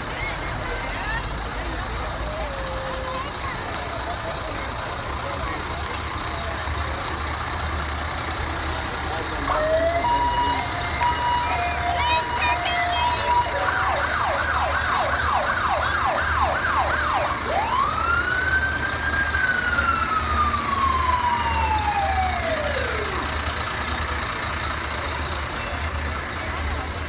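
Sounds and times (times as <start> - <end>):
vehicle engine rumble: 0.0 - 27.0
emergency vehicle siren: 0.6 - 6.8, 8.2 - 27.0.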